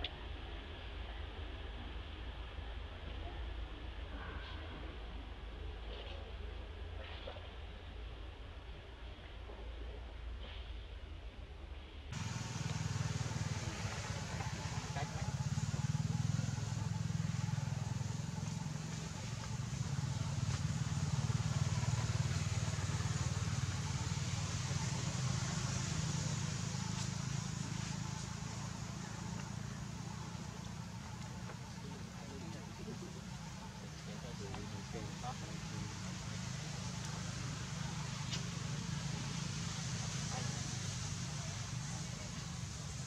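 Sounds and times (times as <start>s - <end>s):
low motor rumble: 12.2s - 43.0s.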